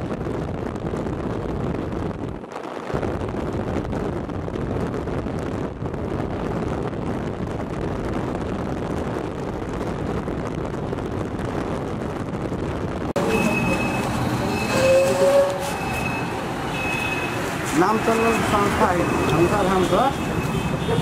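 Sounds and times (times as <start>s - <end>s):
wind rushing over microphone: 0.0s - 21.0s
street traffic: 13.0s - 21.0s
high electronic beep: 13.2s - 20.6s
louder electronic tone: 13.2s - 21.0s.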